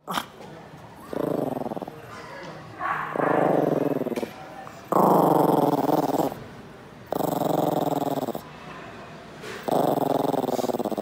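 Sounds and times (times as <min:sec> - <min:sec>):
dog growling: 0:00.0 - 0:00.4, 0:01.0 - 0:02.1, 0:03.0 - 0:06.4, 0:07.1 - 0:08.4, 0:09.6 - 0:11.0.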